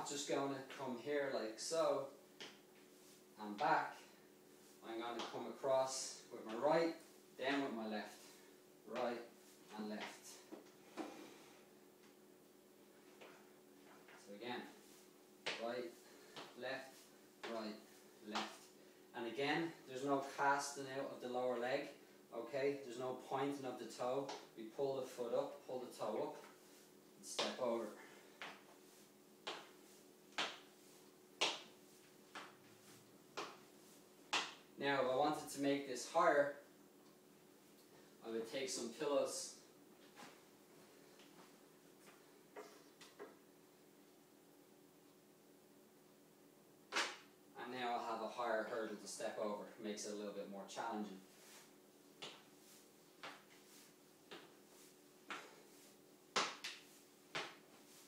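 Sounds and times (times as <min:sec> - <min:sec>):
faint steady hum: 0:00.0 - 0:58.0
footsteps on tile floor: 0:26.4 - 0:34.7, 0:51.3 - 0:58.0
footsteps on tiled floor: 0:51.3 - 0:58.0.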